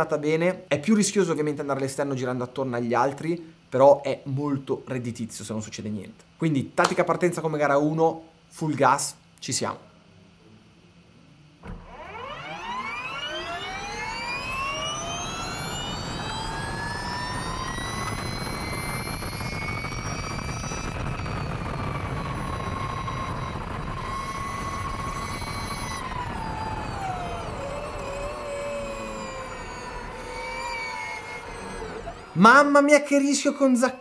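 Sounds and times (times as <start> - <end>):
electric motorcycle motor whine: 11.6 - 32.8.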